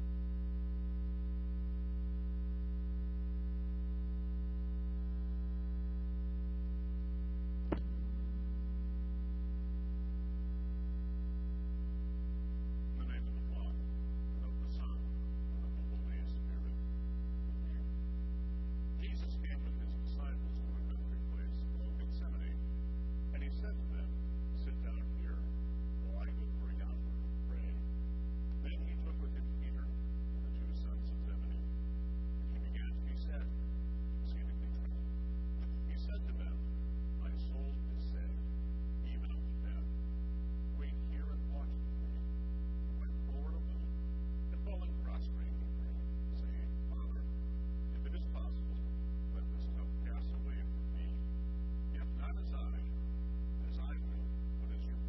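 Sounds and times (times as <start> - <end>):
electrical mains hum: 0.0 - 55.0
faint voice speaking: 13.0 - 13.8, 14.4 - 16.8, 19.0 - 22.6, 23.3 - 27.8, 28.6 - 31.7, 32.5 - 33.5, 34.2 - 35.0, 35.6 - 36.6, 37.2 - 38.4, 39.0 - 39.9, 40.8 - 42.2, 43.0 - 43.9, 44.5 - 47.3, 47.9 - 51.2, 52.0 - 52.9, 53.6 - 55.0.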